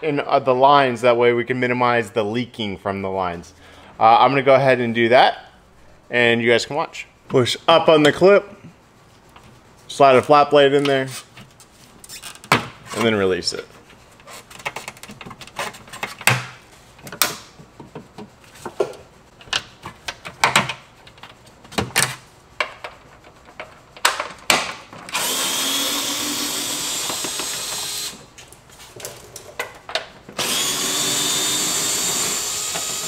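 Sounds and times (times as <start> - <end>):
cordless power tool running: 25.1 - 28.3, 30.4 - 33.0.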